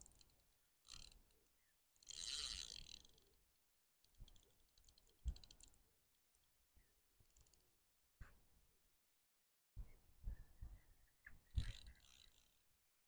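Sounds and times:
fishing reel clicking: 0.0 - 1.4, 2.0 - 3.4, 4.0 - 5.8, 11.6 - 12.6.

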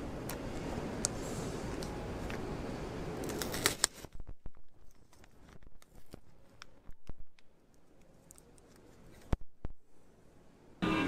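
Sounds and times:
paper wrapper crackling: 3.2 - 9.3.

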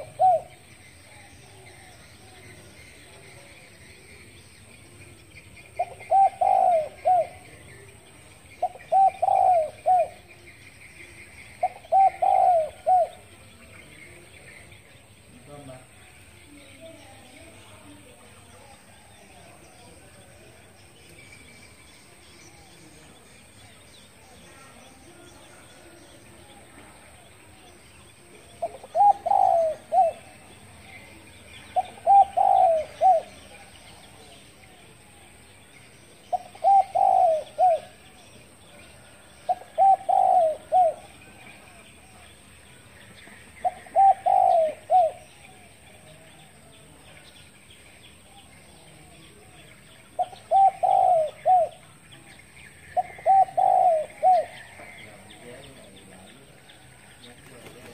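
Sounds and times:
dove cooing: 0.0 - 4.2, 4.9 - 14.6, 28.4 - 35.2, 36.2 - 38.3, 38.9 - 41.8, 43.2 - 46.1, 49.0 - 51.9, 52.7 - 55.8.

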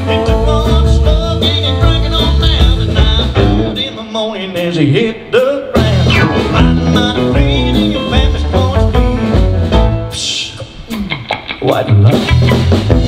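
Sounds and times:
man singing lead vocal: 0.0 - 9.4, 10.1 - 10.9
live country band playing: 0.0 - 13.0.

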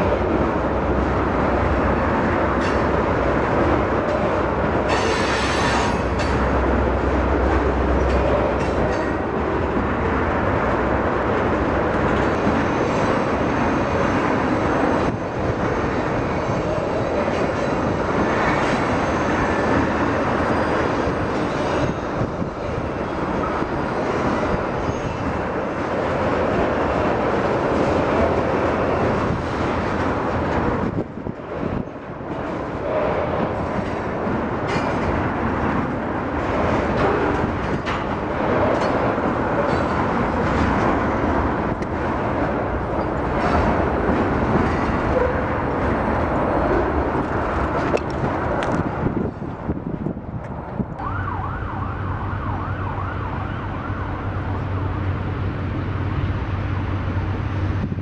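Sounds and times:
train wheels on rail: 0.0 - 58.0
rattling and clicking cars: 25.3 - 50.9.

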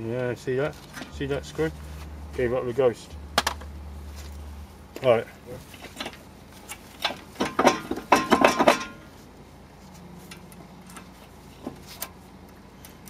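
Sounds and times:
metal tool clinking on rotor: 7.0 - 9.1.

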